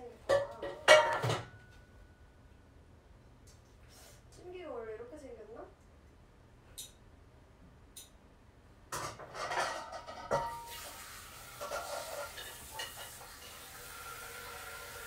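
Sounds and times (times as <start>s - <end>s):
pots and dishes clattering: 0.2s - 1.8s, 8.9s - 15.0s.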